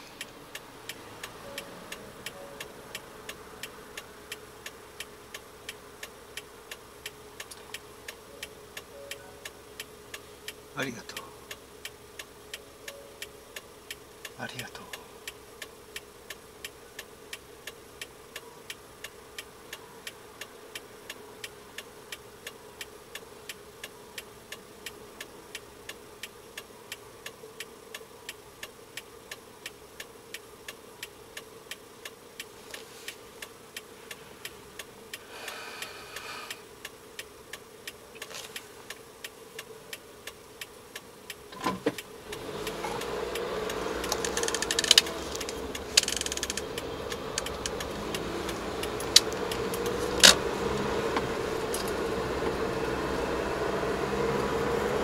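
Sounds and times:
turn signal relay clicking: 41.3s - 52.6s
car engine idling: 41.5s - 55.0s.

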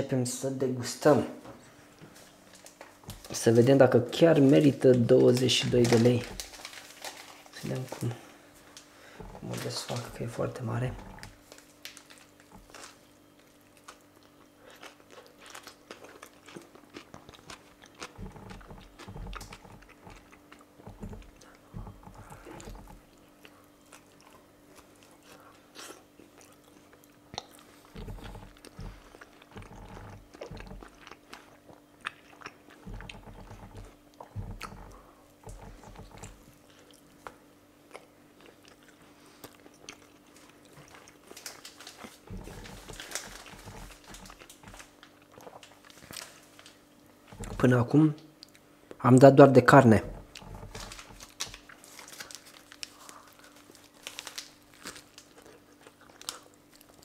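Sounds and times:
faint steady hum: 0.0s - 57.0s
chewing and biting food: 4.3s - 47.7s, 50.1s - 57.0s.

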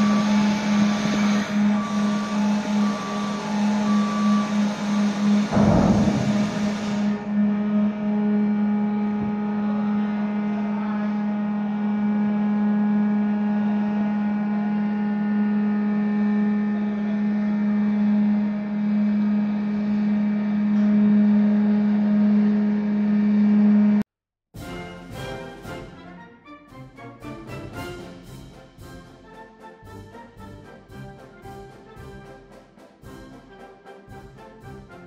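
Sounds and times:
machine hum: 0.0s - 24.0s.

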